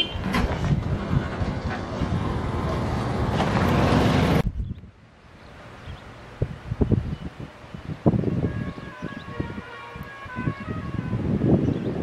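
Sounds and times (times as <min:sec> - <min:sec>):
train rumble: 0:00.0 - 0:04.5
wind buffeting microphone: 0:00.1 - 0:05.0, 0:05.8 - 0:12.0.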